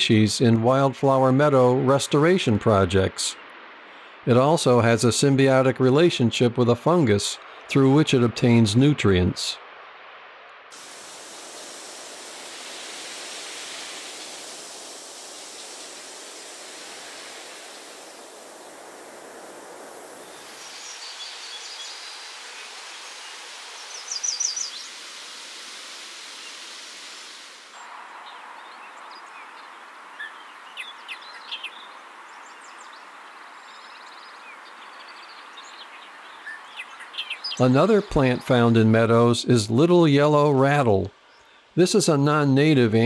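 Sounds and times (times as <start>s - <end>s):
steady background hiss: 0.0s - 43.0s
bird chirps: 20.2s - 25.0s, 27.8s - 38.2s.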